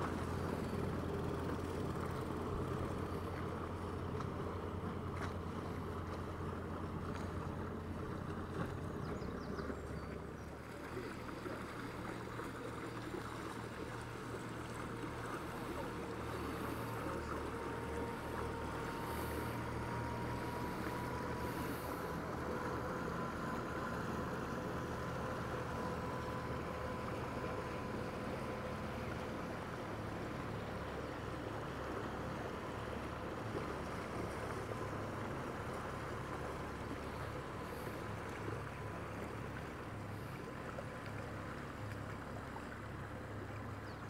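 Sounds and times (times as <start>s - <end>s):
motor boat engine drone: 0.0s - 44.0s
faint rising whine: 10.2s - 41.7s.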